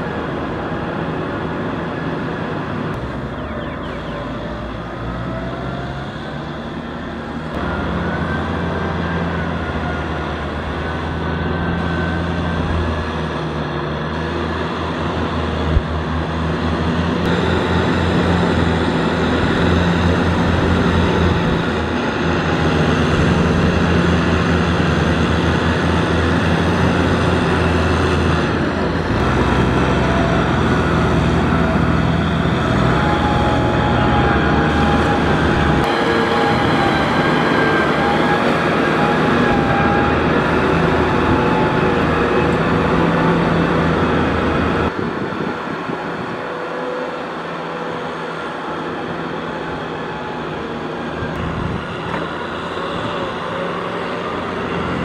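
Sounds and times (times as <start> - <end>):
tractor diesel engine under load: 0.0 - 55.0.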